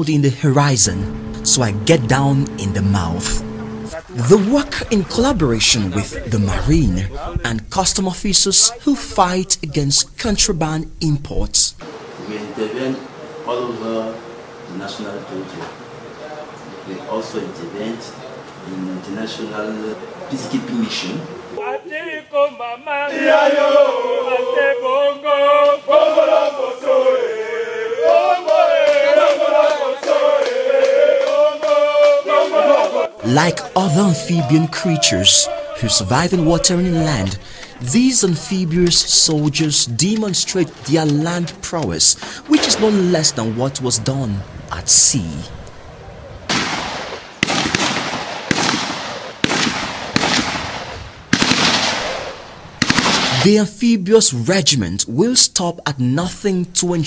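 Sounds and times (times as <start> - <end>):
men chanting in unison: 21.5 - 38.7
rifle shots with rolling echo: 46.5 - 53.4.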